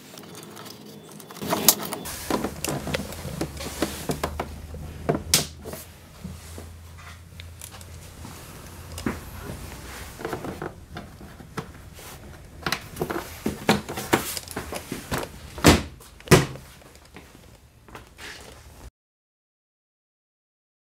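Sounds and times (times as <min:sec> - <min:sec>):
loud plastic thunks: 0:12.6 - 0:16.7.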